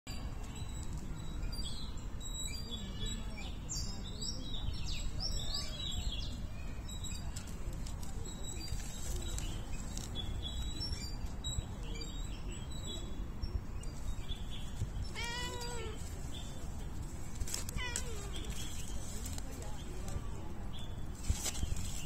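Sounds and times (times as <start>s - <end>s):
small birds chirping: 0.1s - 22.0s
cat meowing: 15.1s - 16.0s, 17.7s - 18.4s.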